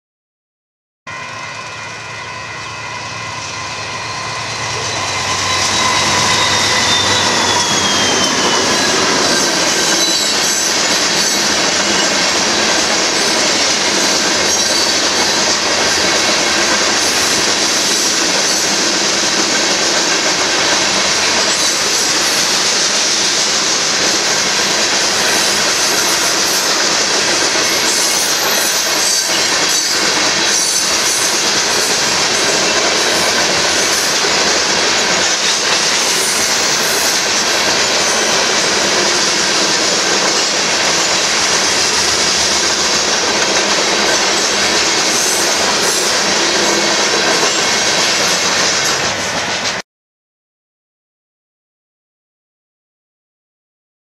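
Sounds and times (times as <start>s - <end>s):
high wheel squeal: 1.1s - 19.8s, 20.6s - 43.2s
train wheels rumbling on rails: 1.1s - 49.8s.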